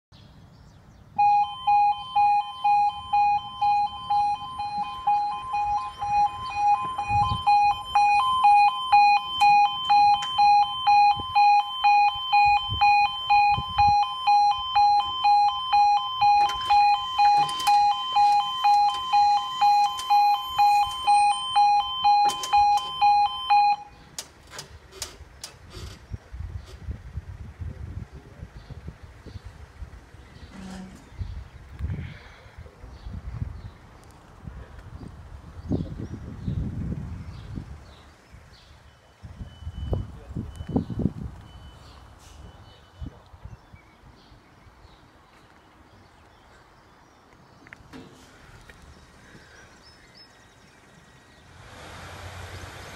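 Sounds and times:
level crossing alarm beeping: 1.2 - 24.0, 38.9 - 43.1.

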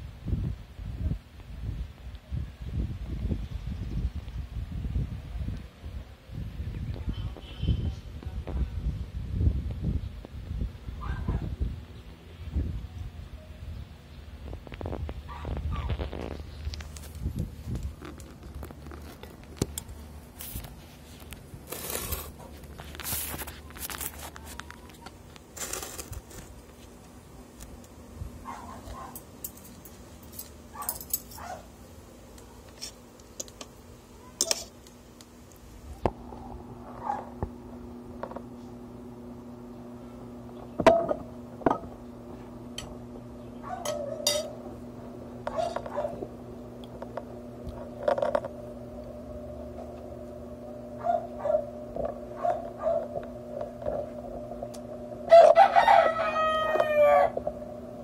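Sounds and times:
steady low hum: 0.0 - 58.0
rooster crowing: 55.3 - 57.4.

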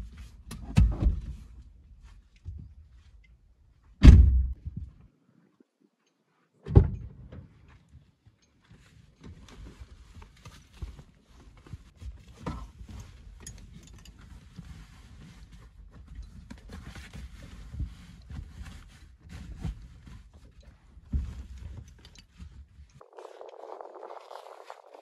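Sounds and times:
fabric backpack rustling: 23.0 - 25.0.

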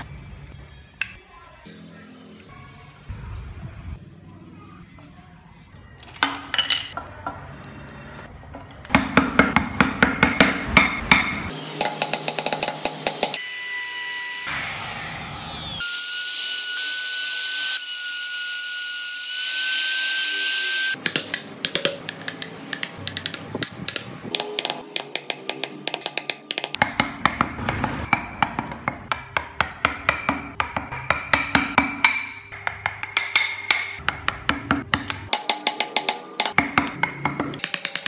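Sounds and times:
hand tools tapping and scraping wood: 21.0 - 38.0.

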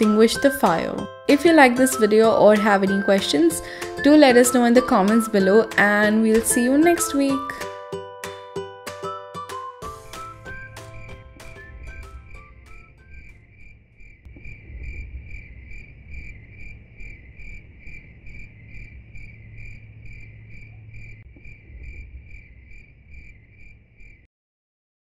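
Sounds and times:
low rumble: 10.0 - 24.2
insect chirping: 10.2 - 24.3.

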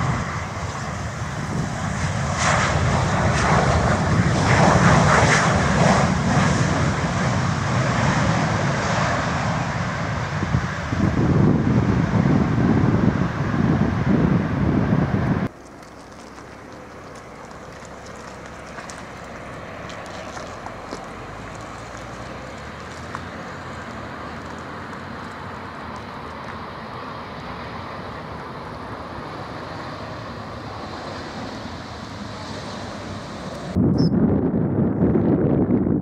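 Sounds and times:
wind on microphone: 0.0 - 15.5, 31.6 - 36.0
steady jet engine noise: 0.0 - 15.6, 19.1 - 36.0
jet engines rumbling: 0.0 - 36.0.

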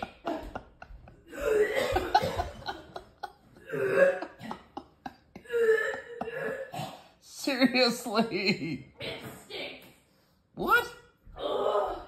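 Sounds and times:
person retching: 3.6 - 4.6, 5.4 - 7.2.

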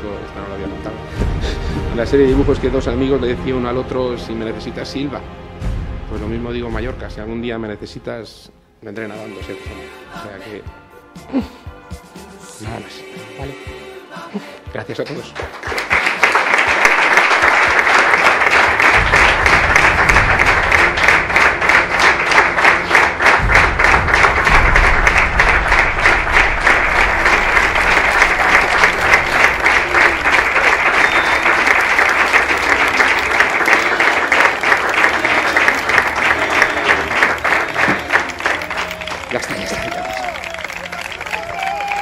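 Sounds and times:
crowd applauding: 15.2 - 42.0.

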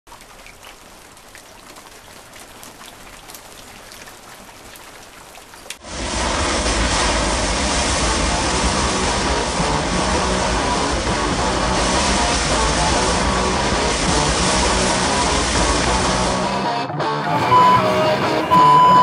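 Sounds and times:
light rain dripping: 0.1 - 5.8
loud steady rushing noise: 5.8 - 16.6.

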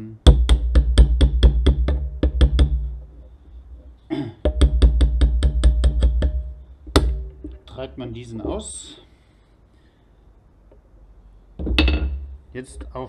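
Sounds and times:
hammer tapping metal punch: 4.4 - 7.6, 11.6 - 12.3.

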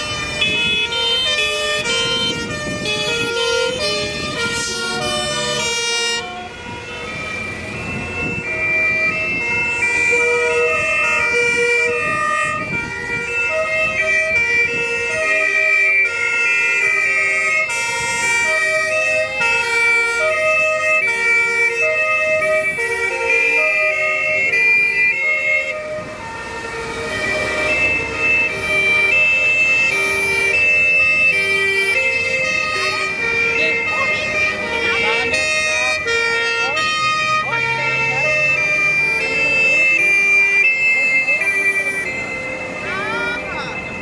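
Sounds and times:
fire truck engines running: 0.0 - 44.0
two-tone fire engine sirens: 0.0 - 44.0.

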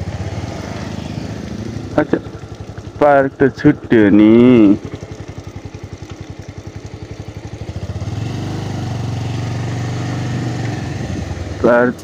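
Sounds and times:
motorcycle engine puttering: 0.0 - 12.0.

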